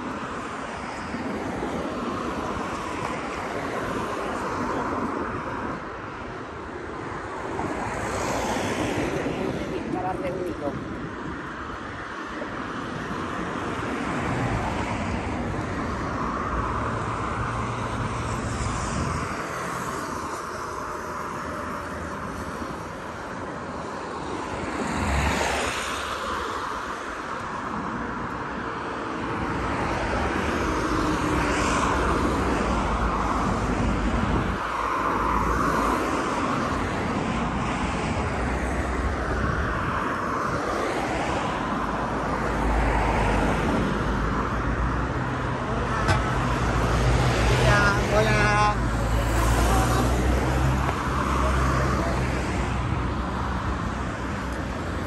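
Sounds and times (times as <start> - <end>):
passing vehicles: 0.0 - 55.0
louder vehicle passing: 38.2 - 55.0.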